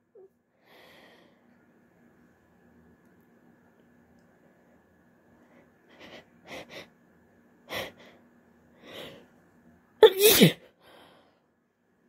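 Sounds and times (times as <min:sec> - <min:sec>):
woman sneezing: 0:10.0 - 0:10.7.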